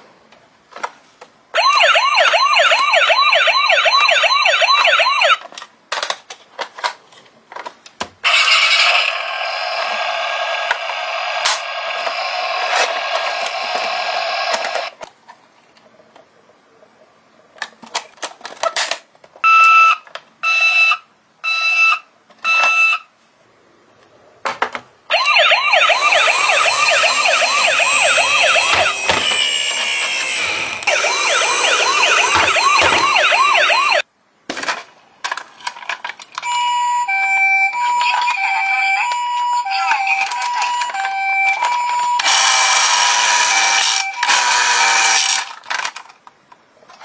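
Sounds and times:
fast-warbling toy siren: 1.6 - 5.4, 8.2 - 13.0, 25.1 - 29.3, 30.9 - 34.0, 37.0 - 45.3
two-note toy siren: 1.6 - 5.4, 25.1 - 29.9, 30.8 - 34.0, 36.4 - 45.3.

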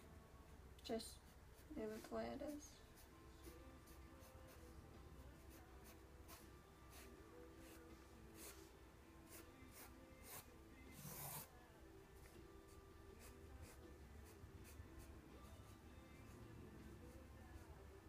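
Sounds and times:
pencil scratching on paper: 5.4 - 7.8, 8.4 - 8.7, 9.3 - 11.5, 13.2 - 14.8.

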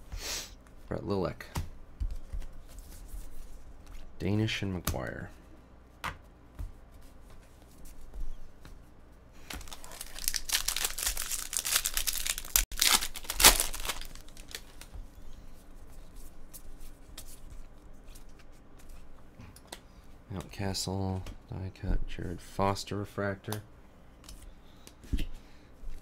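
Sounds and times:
foil wrapper tearing and crinkling: 9.6 - 14.9.

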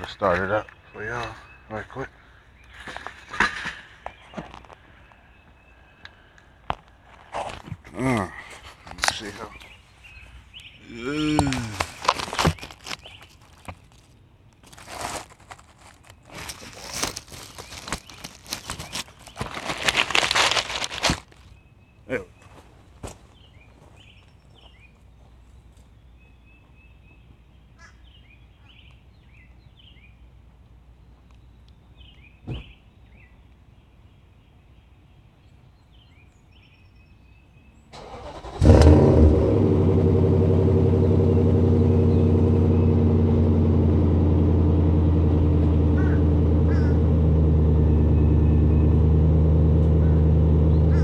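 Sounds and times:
birds chirping: 0.0 - 15.0, 15.8 - 20.1, 21.3 - 30.4, 31.0 - 51.0
thump: 32.4 - 32.7
truck engine starting and idling: 38.0 - 51.0.

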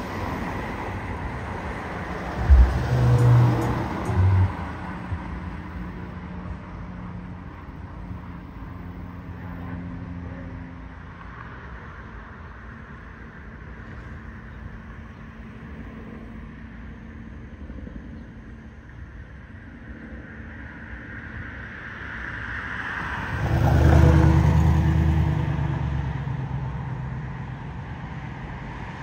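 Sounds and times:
vehicle passing: 0.0 - 7.3, 22.8 - 27.5
traffic hum: 0.0 - 29.0.

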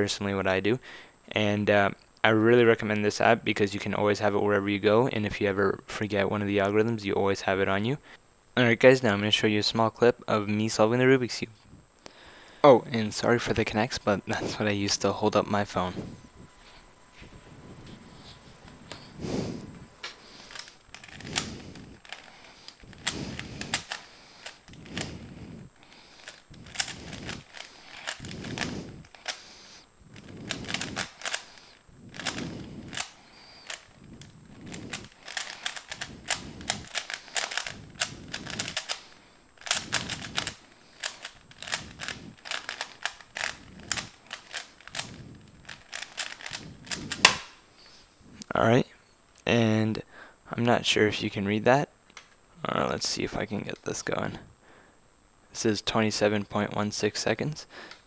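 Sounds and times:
puzzle cube plastic clicking: 19.6 - 29.4, 30.1 - 47.6.

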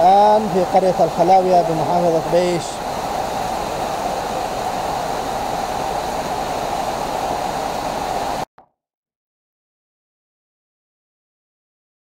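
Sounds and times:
steady rain falling: 0.0 - 8.5.

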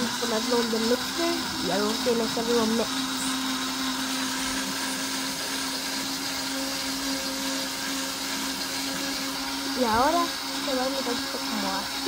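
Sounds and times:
blender running: 0.0 - 12.0.

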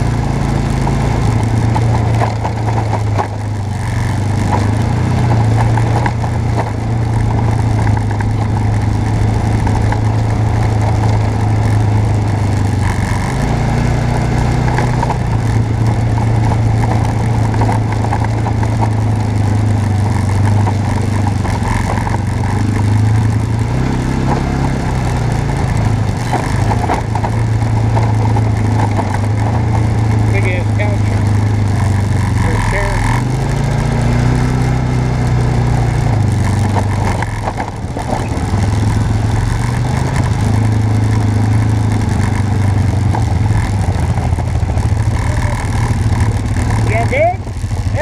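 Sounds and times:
off-road vehicle engine: 0.0 - 48.0.

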